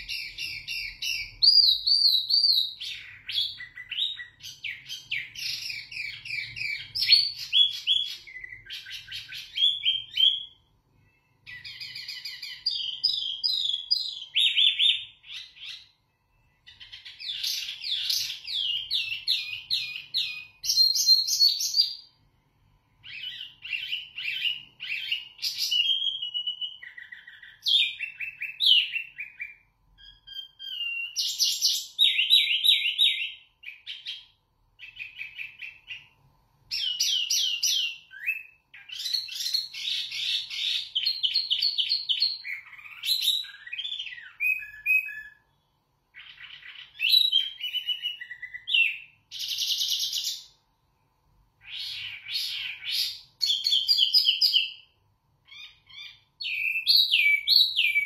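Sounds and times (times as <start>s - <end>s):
songbird singing trills: 0.0s - 22.2s, 36.7s - 50.6s, 51.6s - 58.0s.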